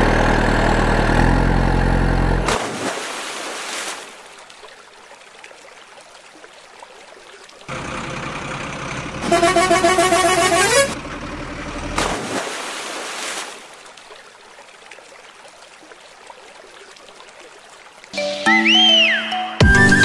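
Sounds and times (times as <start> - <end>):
low engine rumble: 0.0 - 2.5, 7.7 - 12.0
faint water sounds: 0.1 - 19.3
toy truck splashing into water: 2.4 - 4.2, 11.9 - 13.8
truck horn blaring: 9.2 - 11.0.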